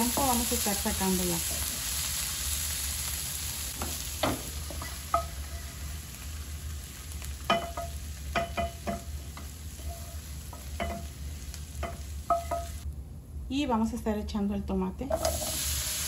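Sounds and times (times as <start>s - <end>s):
vegetables sizzling in a frying pan: 0.0s - 12.8s, 15.1s - 16.0s
pan and spatula clinking on bowl: 7.4s - 11.1s, 11.8s - 12.8s.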